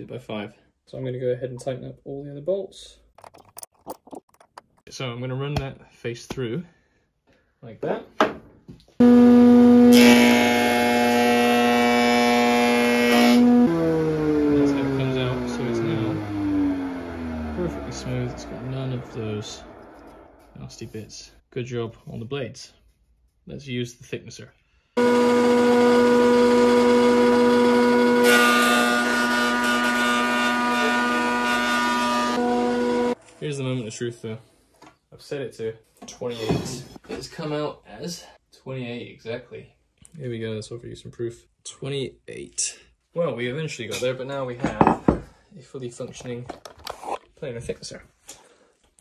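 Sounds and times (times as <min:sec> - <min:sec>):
planer motor hum: 0:09.0 - 0:20.3, 0:25.0 - 0:33.2
machine winding down: 0:13.4 - 0:20.6, 0:25.0 - 0:28.4.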